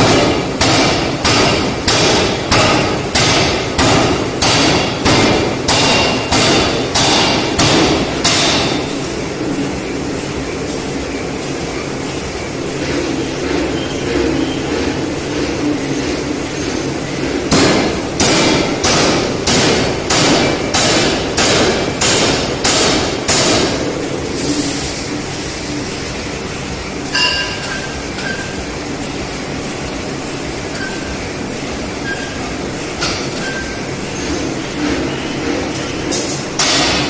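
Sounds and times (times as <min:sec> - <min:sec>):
hammer machine running noise: 0:00.0 - 0:37.0
metallic clank: 0:27.1 - 0:28.5.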